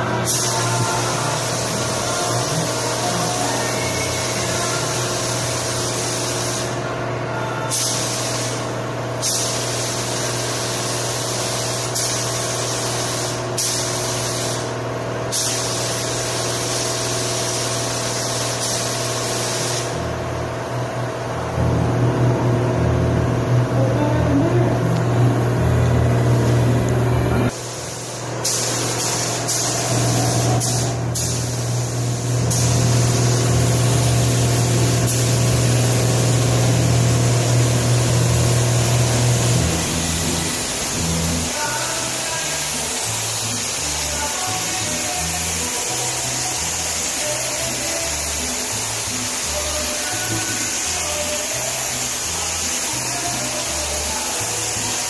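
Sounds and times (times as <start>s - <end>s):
paint spray gun hissing: 0.2s - 6.8s, 7.7s - 20.1s, 27.5s - 55.0s
low machine hum: 8.6s - 46.6s.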